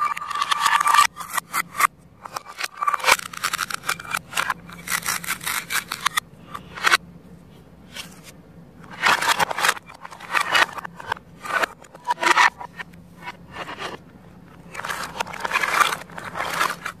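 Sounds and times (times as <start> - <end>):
plastic pieces scraping on wood: 0.0 - 7.0, 8.0 - 17.0
plastic toy pieces rasping apart: 0.0 - 7.0, 14.7 - 17.0.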